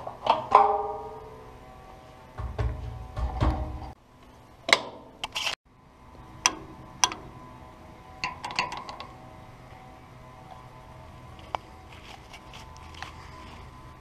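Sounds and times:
low rumble: 0:01.7 - 0:04.0
metallic clicks and knocks: 0:02.4 - 0:04.0, 0:08.2 - 0:09.1.

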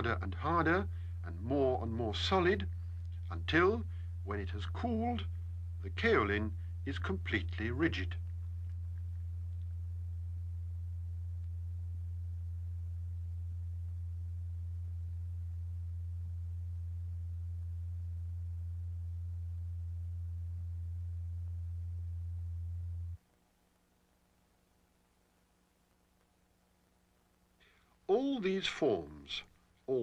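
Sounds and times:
steady deep pure tone: 0:00.0 - 0:23.2.

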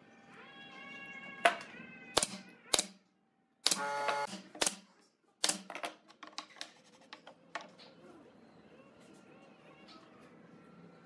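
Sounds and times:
nail gun shooting nails: 0:03.6 - 0:05.7.

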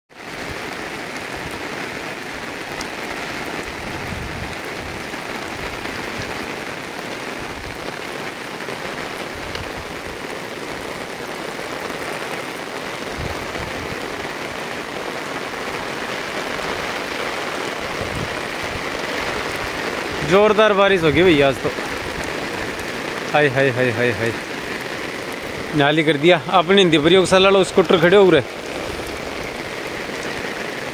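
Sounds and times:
heavy rain pouring: 0:00.1 - 0:30.9.

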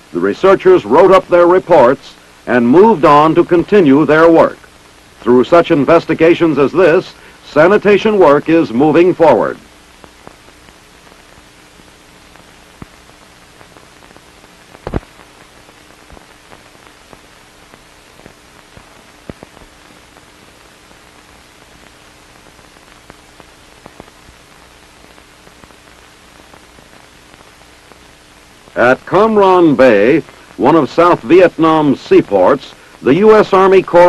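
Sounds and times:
faint hum: 0:00.0 - 0:34.0
film soundtrack hiss: 0:00.0 - 0:34.0
clicks and pops: 0:13.6 - 0:15.4.

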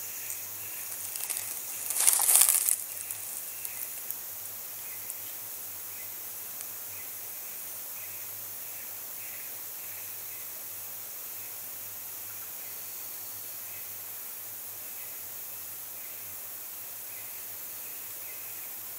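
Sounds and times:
steady high hiss: 0:00.0 - 0:18.9
leaves and vine stems rustling: 0:00.2 - 0:04.2.

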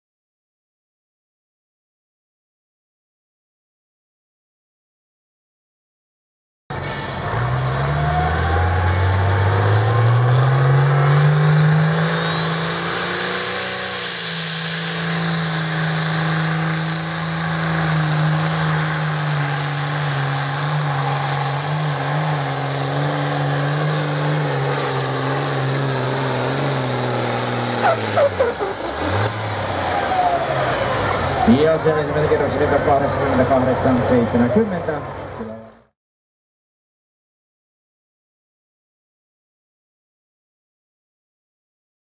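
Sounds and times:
tractor engine under full load: 0:06.7 - 0:35.6.

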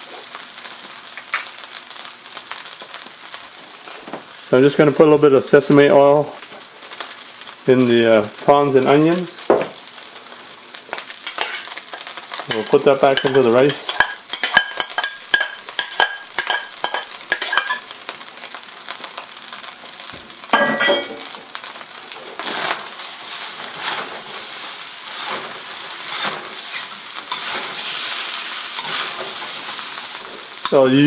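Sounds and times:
oil sizzling in wok: 0:00.0 - 0:31.0
utensils scraping wok: 0:11.2 - 0:17.9, 0:22.3 - 0:31.0
metallic clinks against wok: 0:12.6 - 0:17.8.

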